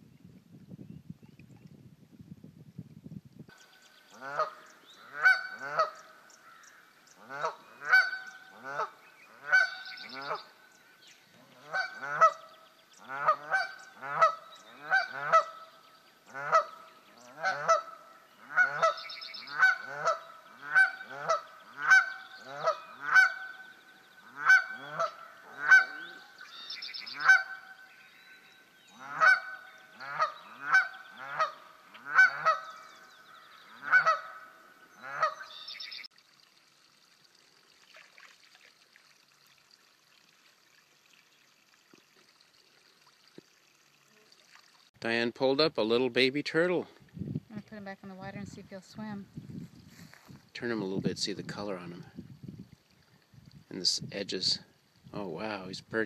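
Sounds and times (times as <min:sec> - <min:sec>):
geese honking: 0:04.2 - 0:10.5, 0:11.4 - 0:15.7, 0:16.3 - 0:27.9, 0:28.9 - 0:35.9.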